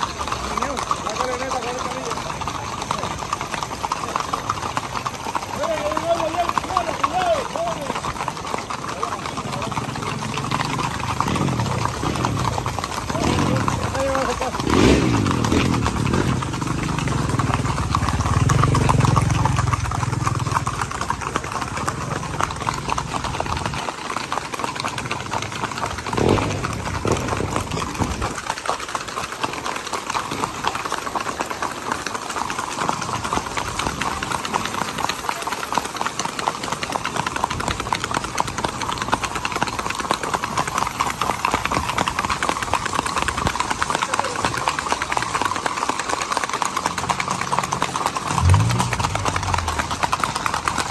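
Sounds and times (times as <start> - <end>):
horse hooves clattering on asphalt: 0.0 - 50.9
low rumble: 48.3 - 50.2.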